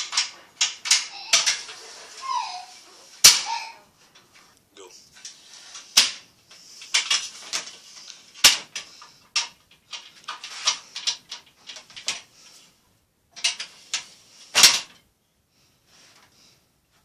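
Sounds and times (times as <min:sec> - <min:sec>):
metal ladder sliding and clanking: 0:00.0 - 0:12.7, 0:13.3 - 0:15.1.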